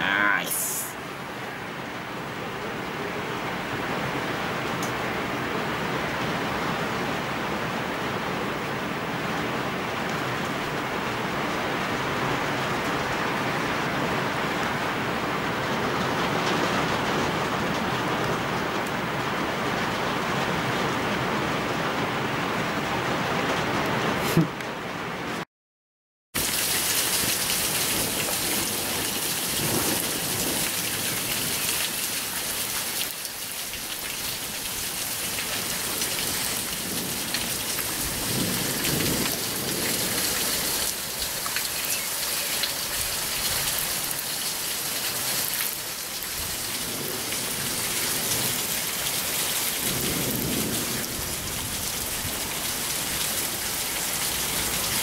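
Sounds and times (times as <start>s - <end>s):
hail and rain pelting down: 8.4s - 25.2s, 26.4s - 55.0s
low thunder rumbles: 49.8s - 52.8s.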